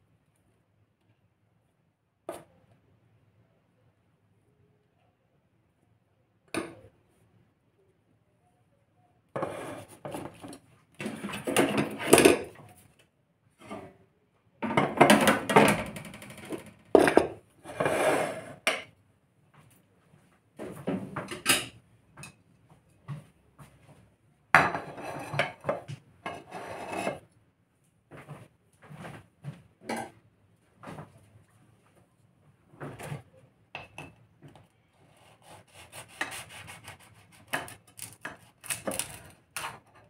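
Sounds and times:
dishes clattering on a table: 0:09.4 - 0:12.6, 0:14.6 - 0:18.9, 0:20.6 - 0:22.4, 0:24.6 - 0:27.2, 0:29.8 - 0:30.2, 0:33.8 - 0:34.6.

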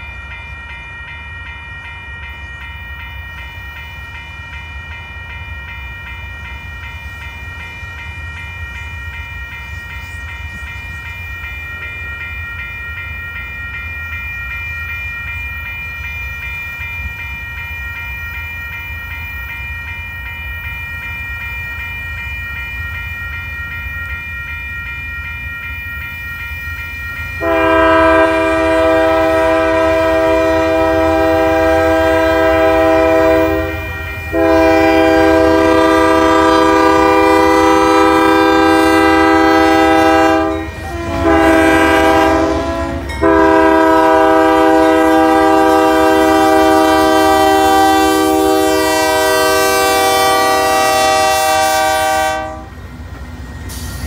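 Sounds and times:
freight train approaching: 0:00.0 - 0:54.0
railroad crossing bell ringing: 0:00.0 - 0:54.0
locomotive air horn blowing: 0:27.4 - 0:52.8.

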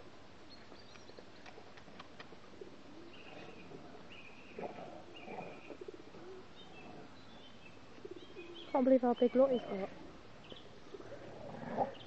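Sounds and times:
bird calls: 0:02.9 - 0:12.0.

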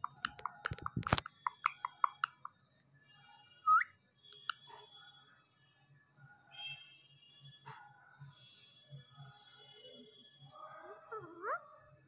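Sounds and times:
beak knocking plastic ball: 0:00.0 - 0:02.4
parakeet chirping: 0:00.0 - 0:02.6, 0:03.7 - 0:04.5.

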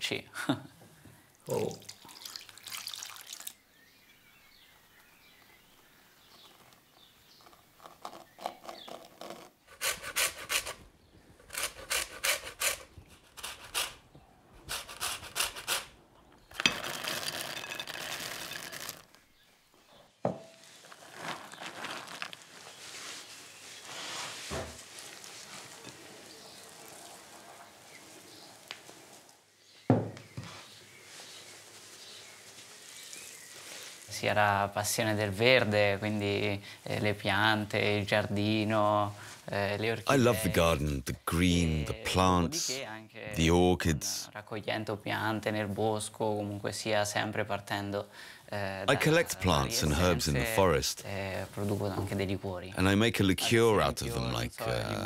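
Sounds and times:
nuts tumbling into glass bowl: 0:16.6 - 0:19.1, 0:20.8 - 0:22.4
hands rubbing dough: 0:20.6 - 0:27.9.

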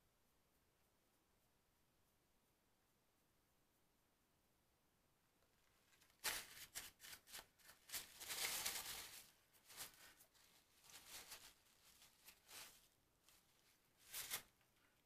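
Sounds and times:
rustling handling noises: 0:05.6 - 0:15.0.

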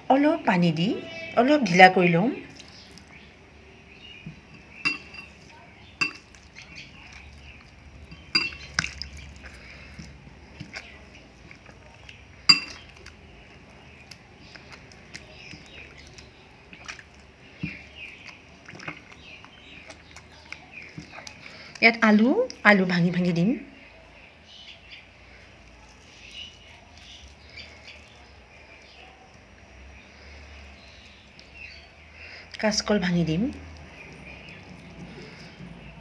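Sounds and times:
wet batter squishing: 0:00.0 - 0:36.0
clinks against glass bowl: 0:04.8 - 0:06.4, 0:08.1 - 0:08.9, 0:12.5 - 0:12.9.

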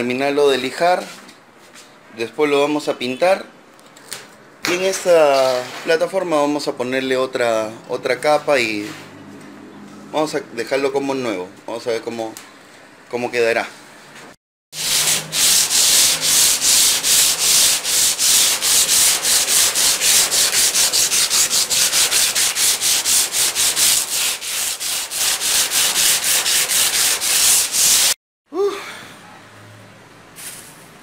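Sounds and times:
sandpaper rubbing on metal: 0:14.8 - 0:28.2.

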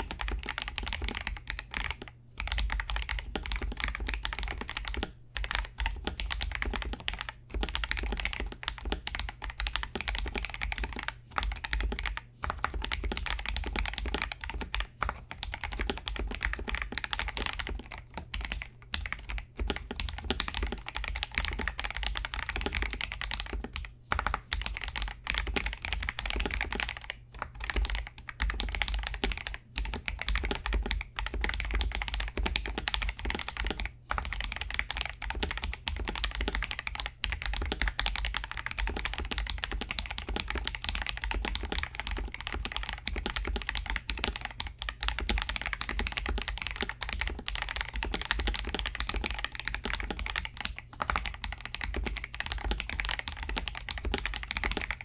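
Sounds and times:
mechanical keyboard typing: 0:00.0 - 0:55.0.

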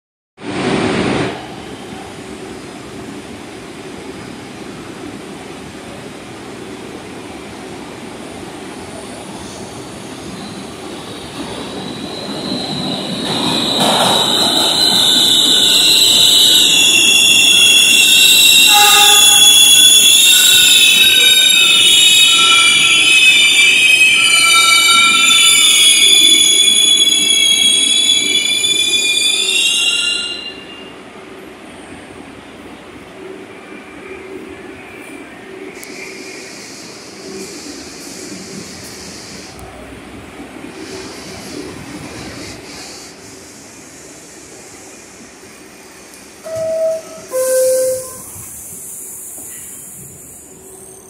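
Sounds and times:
subway train wheels squealing: 0:01.2 - 0:51.0
low station rumble: 0:30.5 - 0:51.0.

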